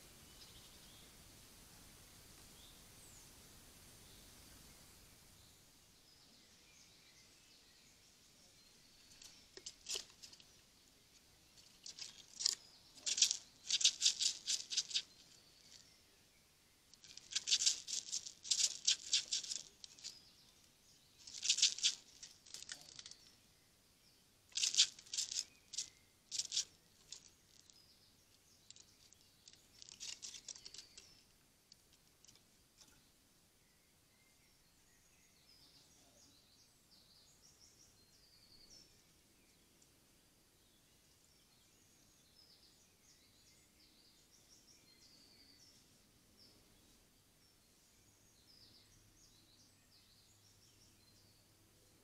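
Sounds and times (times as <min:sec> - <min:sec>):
squirrel clicking and rattling on wood: 0:09.1 - 0:15.9, 0:16.9 - 0:23.3, 0:24.5 - 0:27.9, 0:28.6 - 0:33.0.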